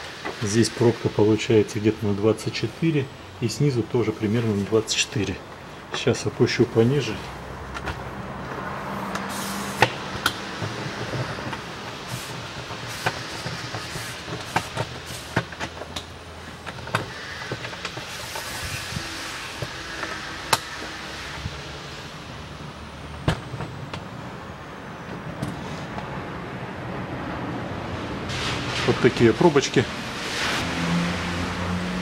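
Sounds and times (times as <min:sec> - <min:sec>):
sharp clicks and metallic knocks: 0:07.2 - 0:18.5.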